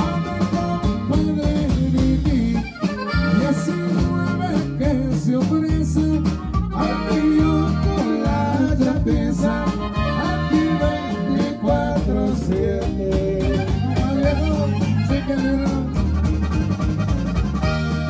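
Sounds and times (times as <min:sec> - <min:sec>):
button accordion melody: 0:00.0 - 0:18.0
live band playing: 0:00.0 - 0:18.0.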